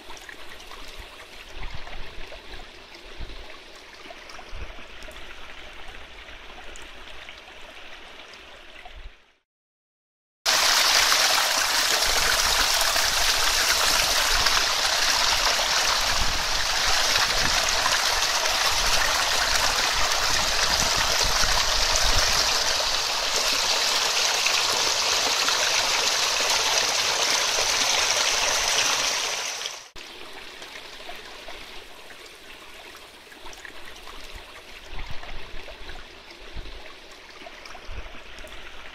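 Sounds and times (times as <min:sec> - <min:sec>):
brook running over stones: 0:10.5 - 0:38.9.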